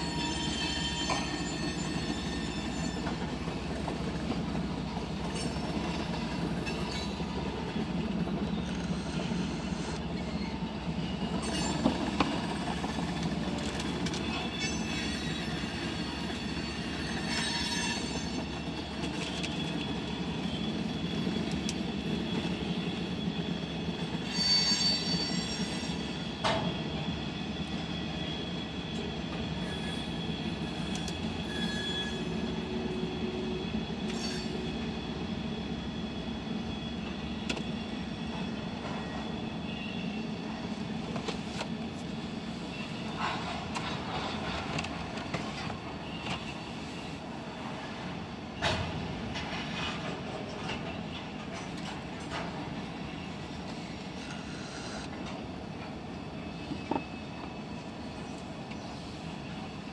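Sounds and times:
high wheel squeals: 0.0s - 3.7s, 8.4s - 40.8s, 52.8s - 55.2s
train wheels rumbling on rail: 0.0s - 59.9s.

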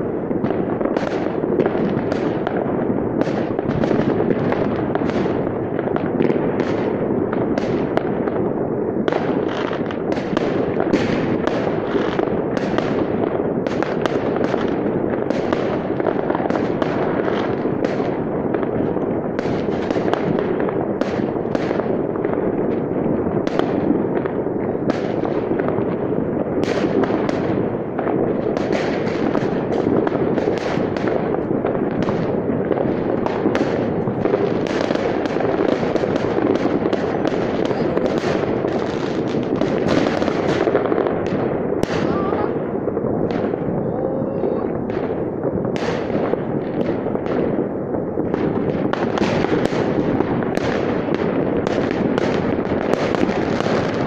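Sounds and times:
fireworks and firecrackers banging: 0.0s - 54.0s.

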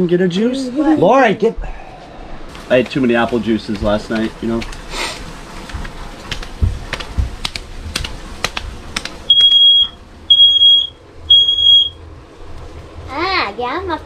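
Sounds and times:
smoke alarm beeping: 9.3s - 12.1s.

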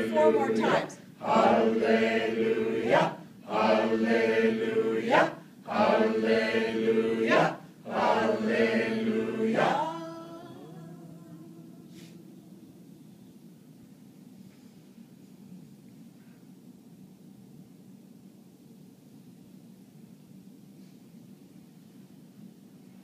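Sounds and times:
group chanting unaccompanied: 0.0s - 11.7s.

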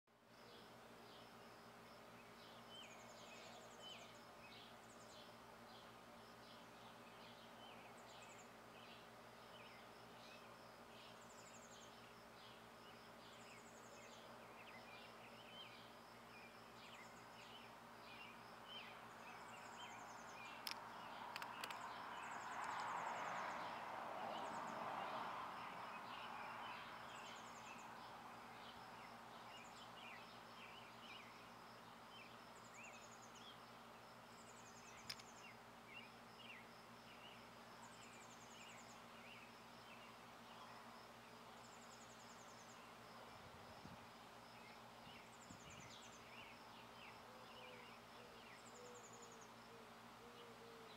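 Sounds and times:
sharp clicks: 20.6s - 21.8s.

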